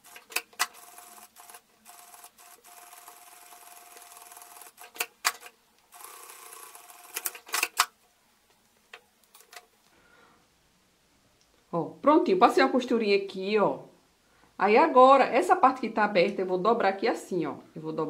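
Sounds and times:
sewing machine stitching: 0.0 - 7.9.

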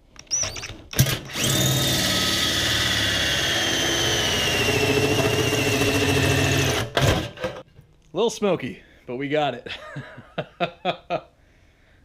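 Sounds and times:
drill hole saw cutting metal: 0.3 - 7.2.

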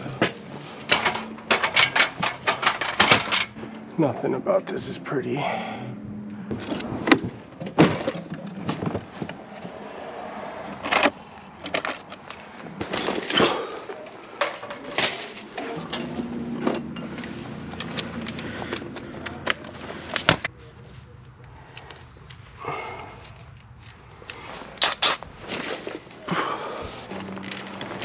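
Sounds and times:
steady low hum: 0.0 - 8.1
metal hardware clicking and rattling: 0.2 - 3.6, 10.8 - 20.5, 23.1 - 26.3.

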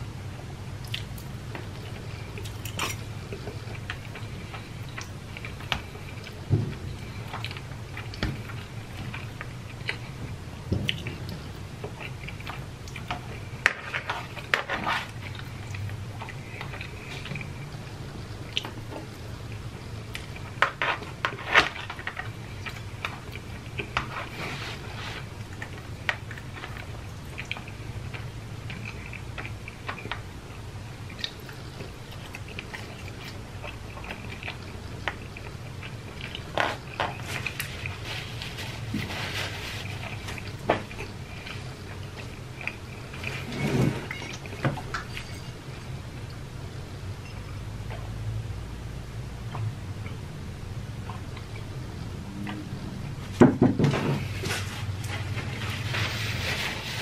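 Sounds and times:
chewing and biting pasta: 0.8 - 43.6.

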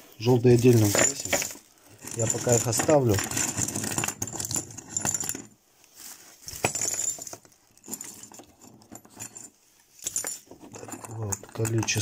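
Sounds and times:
plastic bag rustling: 0.4 - 1.9.

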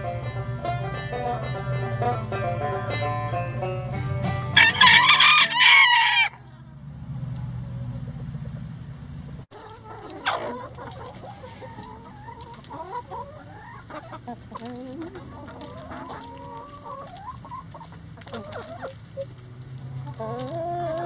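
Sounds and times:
banjo music: 0.0 - 5.6
hen clucking: 0.0 - 6.7, 9.5 - 21.0
rooster crowing: 4.5 - 6.6.

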